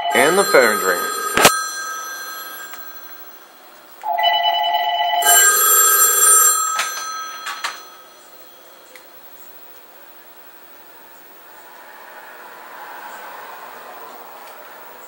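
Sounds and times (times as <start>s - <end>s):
telephone ringing: 0.0s - 8.9s.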